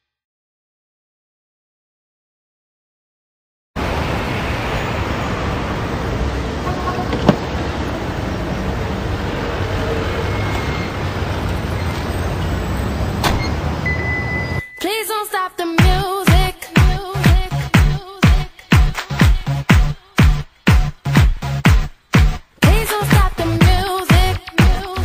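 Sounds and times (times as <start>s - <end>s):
steady rushing noise: 3.8s - 13.8s
door latch click: 7.1s - 7.4s.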